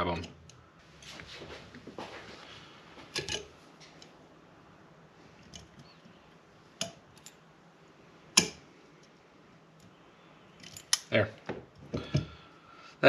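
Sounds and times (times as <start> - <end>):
sharp metal clicks: 10.6 - 11.2.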